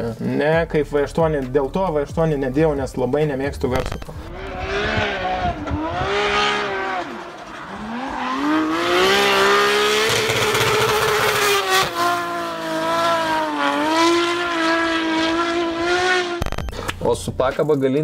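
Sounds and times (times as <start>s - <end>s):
car engine revving hard: 3.8s - 16.5s.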